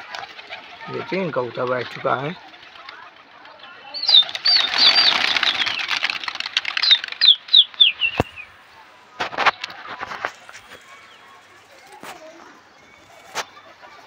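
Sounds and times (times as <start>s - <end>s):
pigeon wings flapping: 0.0s - 8.4s.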